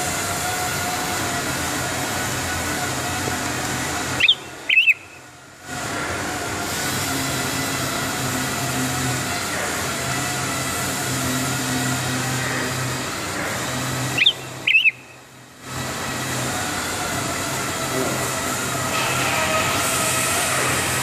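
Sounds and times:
machine hum: 0.0 - 21.0
high chirps bending in pitch: 4.2 - 5.2, 14.1 - 15.2.

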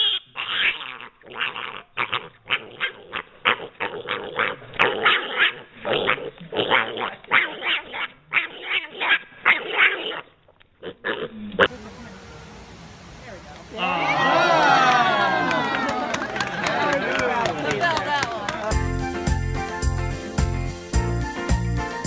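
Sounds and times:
pig grunting and squealing: 0.0 - 11.7.

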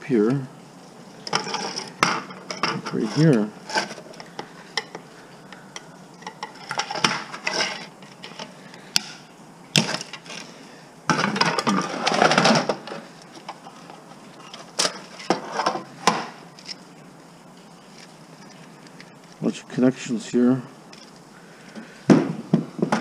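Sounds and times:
metal scraping: 1.1 - 5.1, 6.1 - 8.6.

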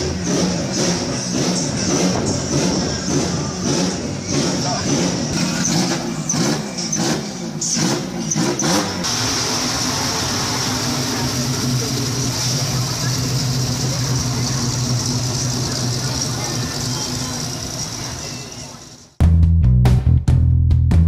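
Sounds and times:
car engine revving: 0.0 - 19.0
car rolling slowly past: 9.1 - 19.0.

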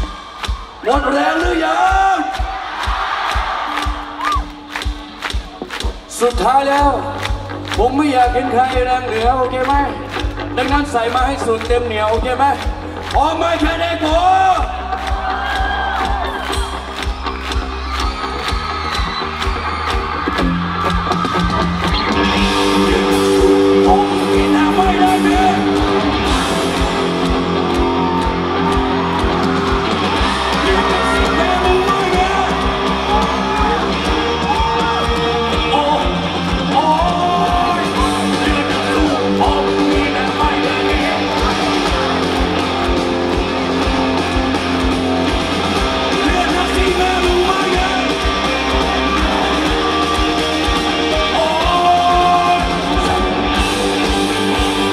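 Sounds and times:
live rock band playing: 2.8 - 54.9
person singing: 22.2 - 26.2, 30.2 - 42.6, 46.1 - 54.9.

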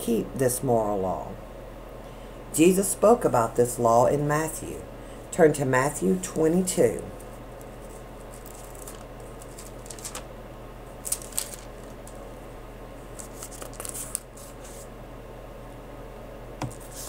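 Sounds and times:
steady low hum: 0.0 - 17.0
paper pages turning: 7.2 - 10.3, 11.0 - 12.2, 13.1 - 14.9, 16.6 - 17.0.

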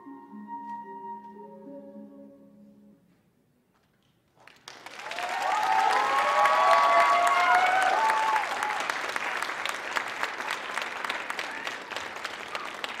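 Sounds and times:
audience applauding: 4.4 - 13.0
high voices cheering: 5.0 - 9.2.

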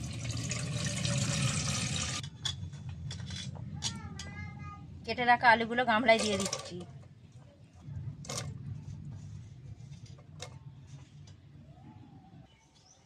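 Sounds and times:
low rumble: 7.8 - 10.2.

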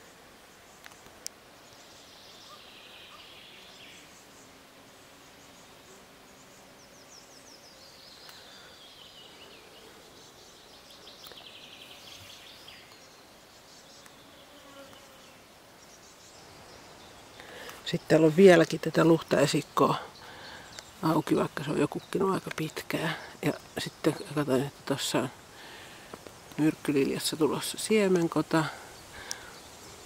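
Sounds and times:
flying insect buzzing: 0.0 - 15.6
birds singing trills: 0.5 - 30.0.

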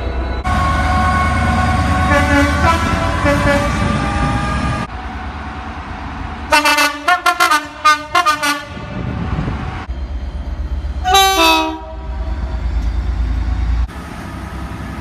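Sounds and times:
two-tone locomotive horn: 0.4 - 4.4, 6.5 - 8.9, 11.0 - 12.6
diesel engine rumble: 1.8 - 15.0.

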